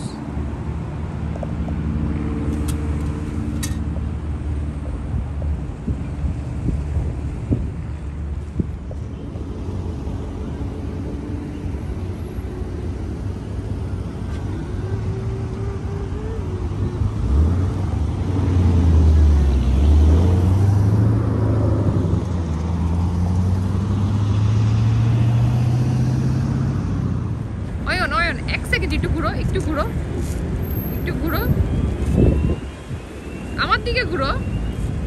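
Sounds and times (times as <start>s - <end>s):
vehicle engines running: 0.0s - 35.0s
vehicle pulling away: 10.2s - 27.4s.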